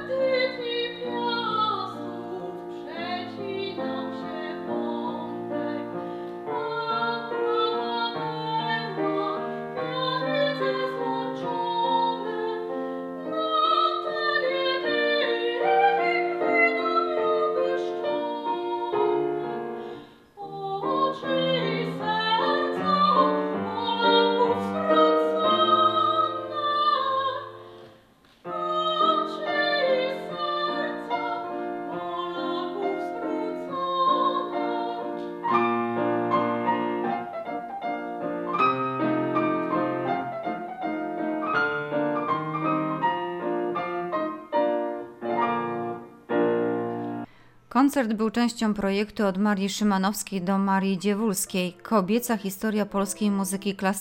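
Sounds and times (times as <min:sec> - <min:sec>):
woman singing operatically: 0:00.0 - 0:19.7, 0:20.4 - 0:27.6, 0:28.5 - 0:35.3
grand piano accompaniment: 0:00.0 - 0:47.4.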